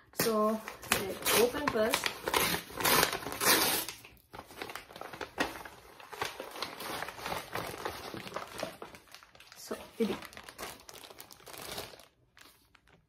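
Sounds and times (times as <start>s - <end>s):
paper crinkling and rustling: 0.3s - 13.0s
paper mailer tearing open: 0.9s - 8.5s.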